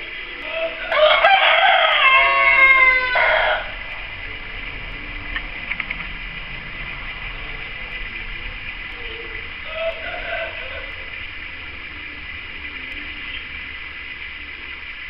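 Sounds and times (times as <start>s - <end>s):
rooster crowing: 0.0s - 5.3s, 7.3s - 14.8s
faint clicks: 3.8s - 15.0s.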